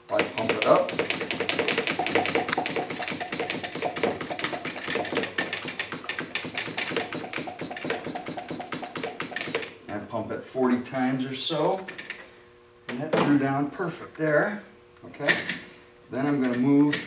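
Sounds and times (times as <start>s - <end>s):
hand pump clicking strokes: 0.1s - 9.7s.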